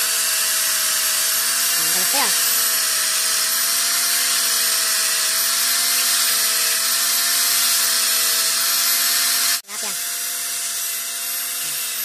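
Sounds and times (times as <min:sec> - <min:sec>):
angle grinder grinding plastic: 0:00.0 - 0:12.0.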